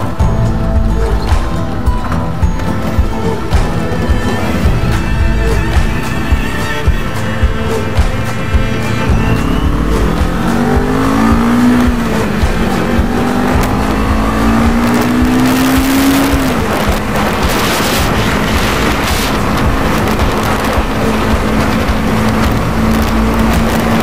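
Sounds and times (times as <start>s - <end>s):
wind noise on microphone: 0.0s - 24.0s
motorcycle engine accelerating: 7.7s - 24.0s.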